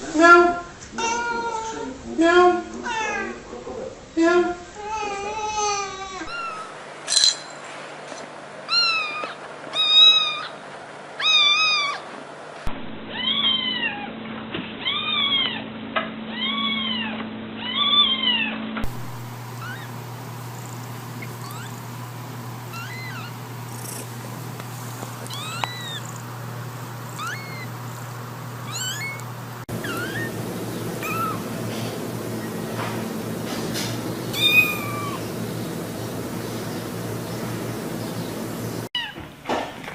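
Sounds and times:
adult cat meowing: 22.7 - 23.3, 25.3 - 26.2, 27.1 - 27.7, 28.7 - 29.2, 34.4 - 35.2.

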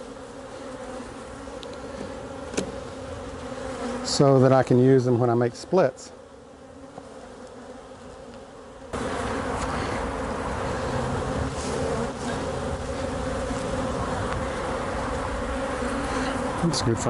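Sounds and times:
honeybees buzzing: 0.0 - 17.0.

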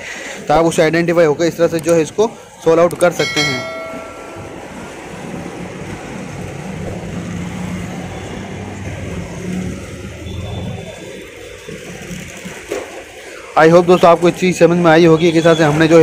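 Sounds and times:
washing machine humming: 3.2 - 14.3.

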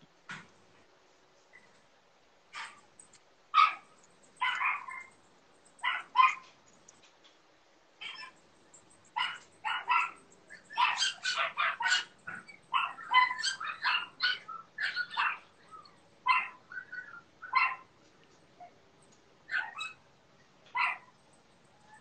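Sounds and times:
dog yapping and whining: 2.6 - 2.8, 3.6 - 5.2, 5.8 - 6.5, 8.0 - 8.4, 9.2 - 17.9, 19.5 - 20.0, 20.7 - 21.1.

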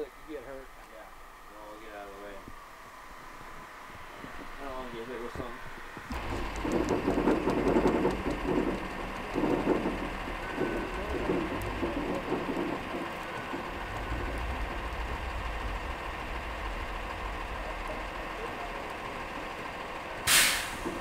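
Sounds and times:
truck engine running: 3.1 - 21.0
winch pulling under strain: 6.1 - 19.8.

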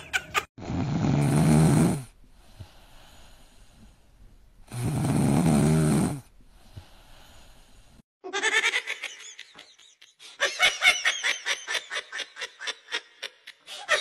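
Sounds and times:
cat snoring: 0.6 - 3.8, 4.7 - 8.0
faint breathing: 2.3 - 4.3, 6.4 - 8.0.

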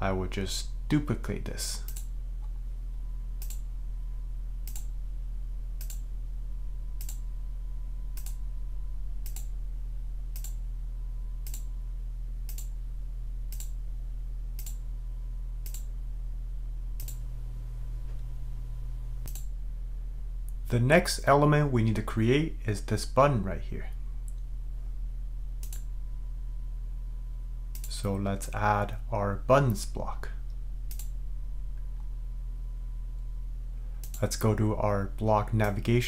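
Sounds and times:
steady low hum: 0.0 - 36.0
computer mouse clicking: 1.9 - 2.1, 3.4 - 3.6, 4.6 - 4.9, 5.8 - 6.0, 7.0 - 7.2, 8.2 - 8.4, 9.2 - 9.5, 10.3 - 10.6, 11.4 - 11.7, 12.5 - 12.7, 13.5 - 13.8, 14.6 - 14.8, 15.6 - 15.9, 17.0 - 17.2, 19.2 - 19.5, 25.6 - 25.9, 27.7 - 27.9, 30.9 - 31.1, 34.0 - 34.2.

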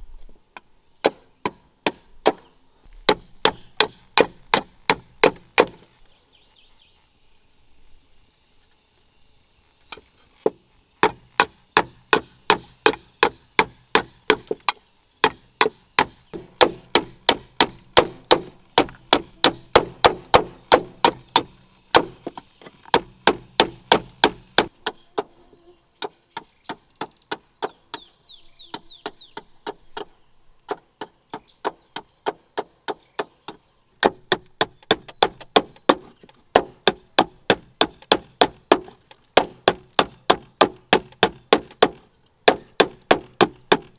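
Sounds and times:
knife chopping bamboo: 3.0 - 5.8, 10.4 - 25.3, 31.6 - 43.9.

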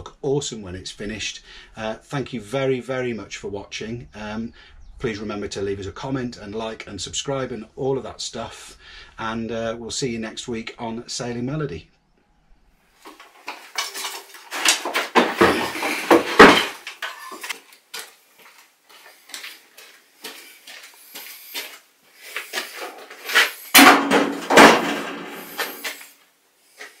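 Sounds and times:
hard objects clattering on workbench: 13.1 - 17.7, 22.3 - 26.1.

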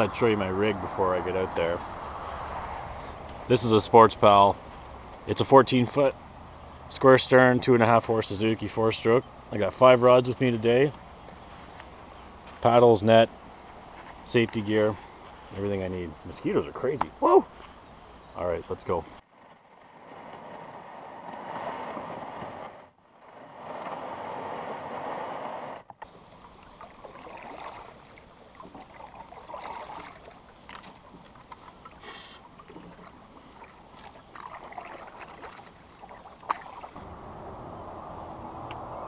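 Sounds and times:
water rippling against canoe hull: 25.8 - 37.0
small splashes: 26.0 - 37.0.

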